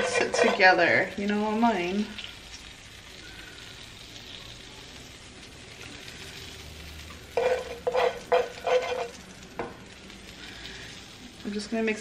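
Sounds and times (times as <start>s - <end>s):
metal spoon scraping a pan: 0.0s - 1.1s, 6.4s - 9.3s
sauce sizzling in a frying pan: 0.0s - 12.0s.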